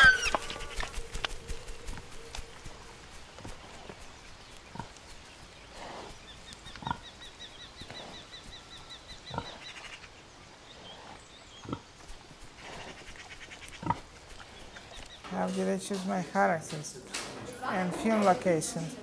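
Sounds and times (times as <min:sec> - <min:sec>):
pig grunting: 0:09.2 - 0:09.7, 0:13.7 - 0:14.6.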